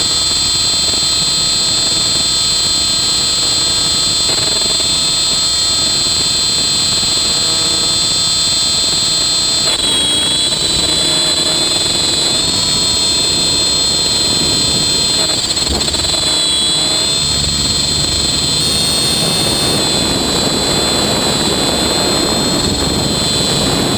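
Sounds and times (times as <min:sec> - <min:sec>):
electric motor whine: 0:00.0 - 0:23.9
helicopter rotor noise: 0:00.0 - 0:23.9.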